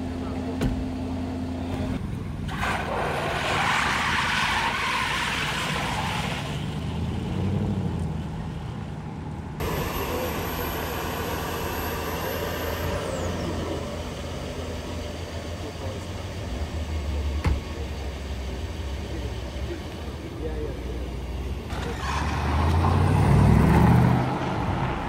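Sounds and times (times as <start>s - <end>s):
steady engine hum: 6.5s - 21.9s
car passing: 21.7s - 25.0s.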